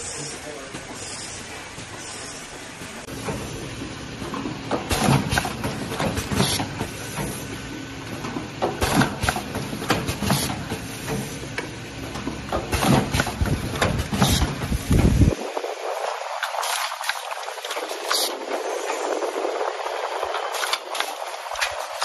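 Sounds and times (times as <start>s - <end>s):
steady machine hum: 0.0s - 22.0s
pneumatic press clacking and hissing: 0.9s - 15.3s.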